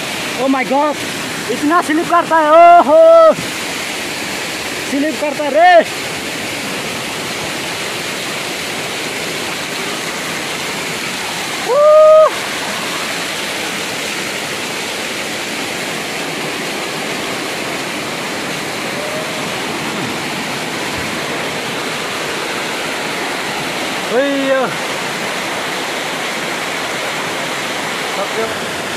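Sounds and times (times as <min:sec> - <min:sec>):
waterfall rushing over rocks: 0:00.0 - 0:28.9
person exclaiming loudly: 0:01.6 - 0:03.4, 0:11.6 - 0:12.4, 0:18.9 - 0:19.6.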